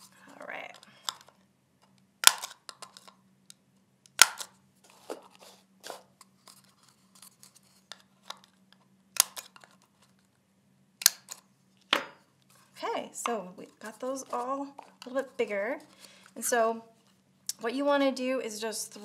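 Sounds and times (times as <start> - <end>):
paper cups clicking and knocking: 2.3 - 3.2.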